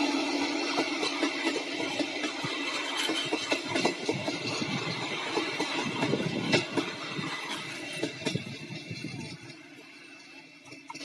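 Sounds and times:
train wheels clacking over rail joints: 0:00.0 - 0:11.0.

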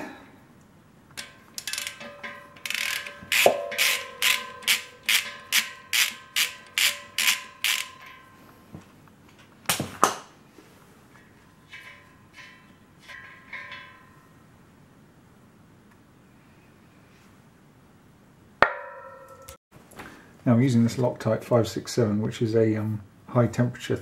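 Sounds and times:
socket ratchet clicking: 0:01.2 - 0:08.2.

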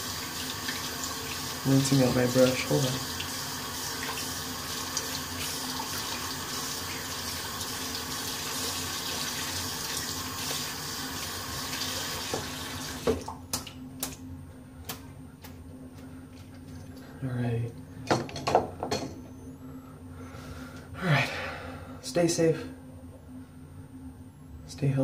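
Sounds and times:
sink tap running: 0:00.0 - 0:13.7.

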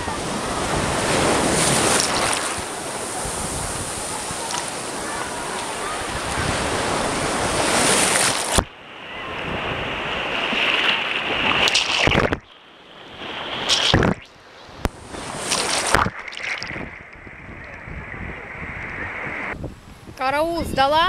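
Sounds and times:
muffled surf washing over microphone: 0:00.0 - 0:21.0.

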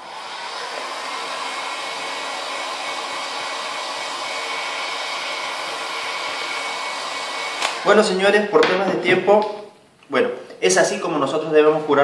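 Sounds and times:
heat gun blowing air: 0:00.0 - 0:08.1.

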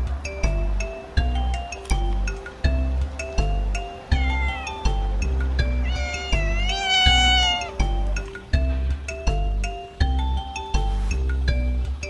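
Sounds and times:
background music: 0:00.0 - 0:12.0
cat meowing: 0:04.1 - 0:08.3.

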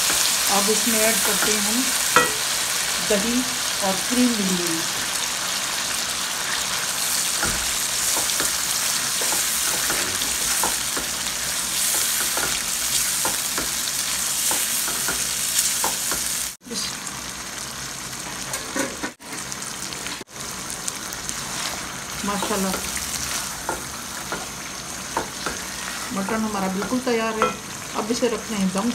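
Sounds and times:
food sizzling in hot oil: 0:00.0 - 0:28.9
spatula scraping and tapping pan: 0:07.4 - 0:11.2, 0:25.1 - 0:27.6.

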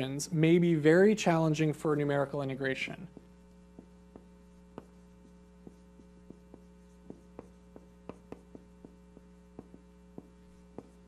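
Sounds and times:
electrical mains hum: 0:00.0 - 0:11.0
marker tapping on whiteboard: 0:03.1 - 0:11.0.

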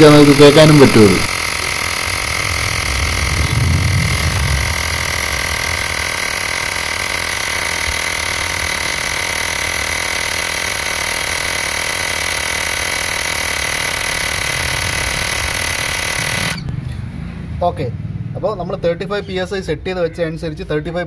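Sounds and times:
electric air compressor buzzing: 0:00.0 - 0:16.7.

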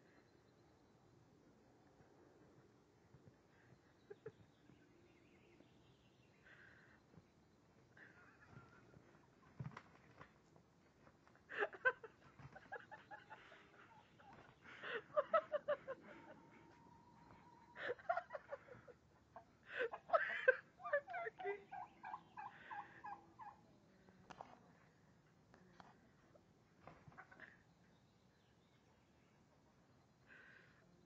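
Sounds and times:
turkey gobbling: 0:21.1 - 0:23.6.

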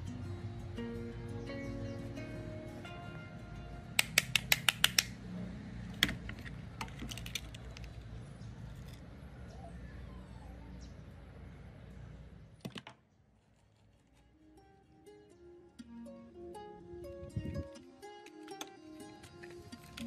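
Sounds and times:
plastic and metal parts clicking: 0:06.0 - 0:08.1.

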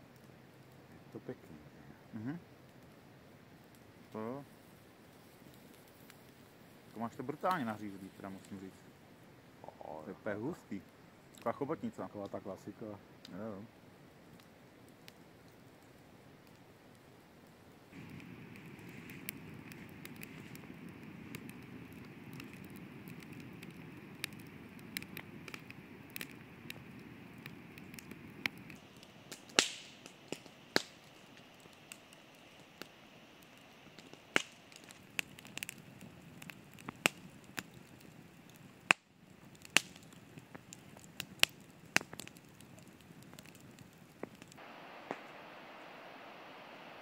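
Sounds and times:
campfire crackling and popping: 0:00.0 - 0:47.0.

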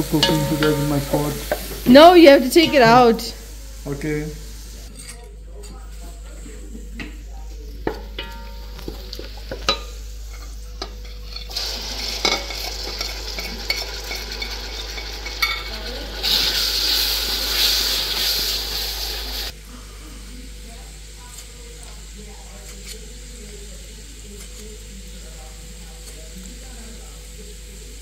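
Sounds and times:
spoon and plate knocking on metal: 0:00.0 - 0:01.8
onions sizzling in oil: 0:00.0 - 0:05.1, 0:05.9 - 0:28.0
wooden spoon stirring: 0:07.8 - 0:18.5.

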